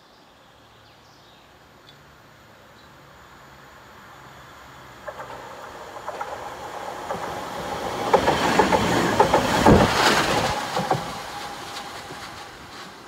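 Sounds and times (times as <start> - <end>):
tram passing by: 3.0 - 13.0
wheels clicking over rail joints: 4.8 - 13.0.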